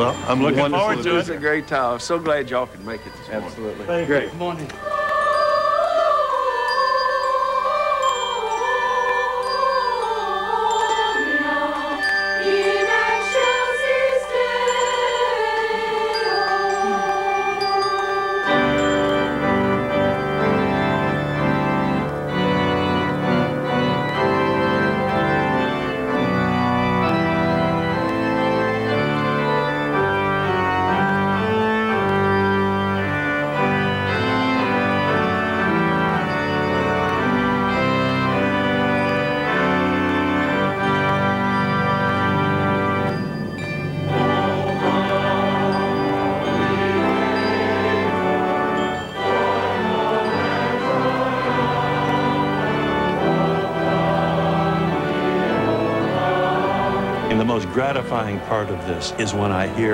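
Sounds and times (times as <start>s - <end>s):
choir singing: 0.0s - 59.9s
pipe organ chords: 0.0s - 59.9s.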